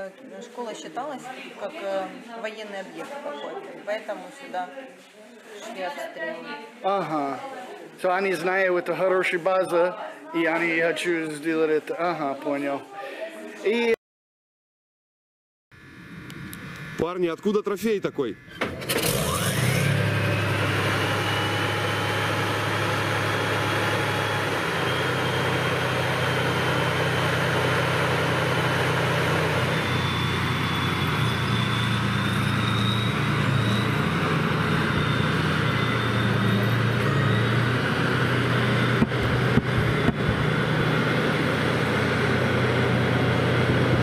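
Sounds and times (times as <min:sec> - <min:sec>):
faint high whine: 0:15.8 - 0:27.2
tank engine droning: 0:18.1 - 0:44.0.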